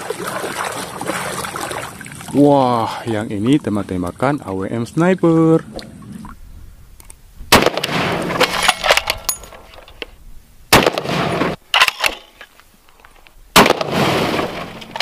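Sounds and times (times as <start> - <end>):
rifle shots with echo: 7.5 - 8.5, 10.7 - 11.6, 13.6 - 15.0.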